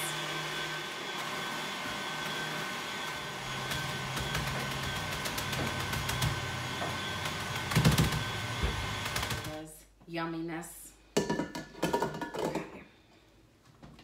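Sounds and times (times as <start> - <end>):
stand mixer whisking cream: 0.1 - 9.6.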